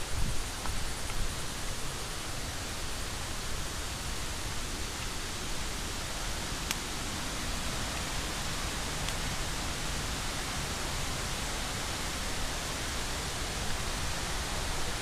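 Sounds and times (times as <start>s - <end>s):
faint tick: 0.6s - 1.8s.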